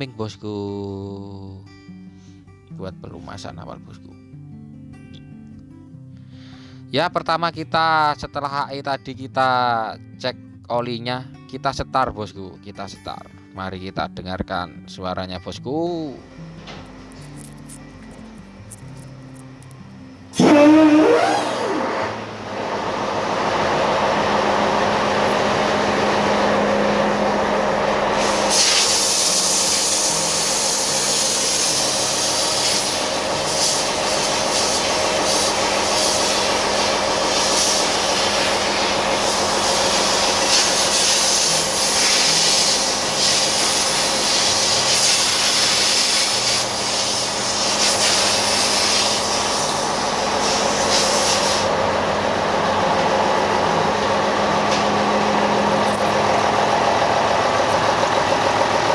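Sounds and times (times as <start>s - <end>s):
diesel engine running: 16.1s - 58.9s
loud steady hiss: 28.1s - 51.8s.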